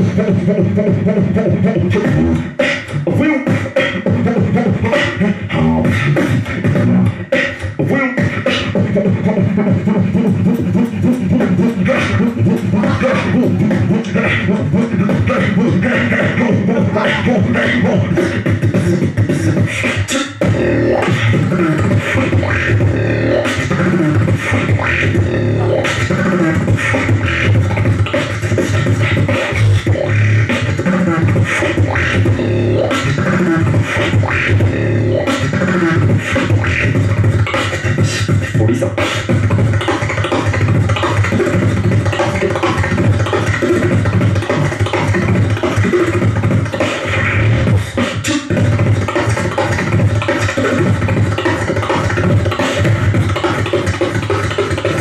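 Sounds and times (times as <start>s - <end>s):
person beatboxing: 0.0s - 55.0s
steady low bass tone: 20.4s - 28.0s, 31.8s - 35.3s.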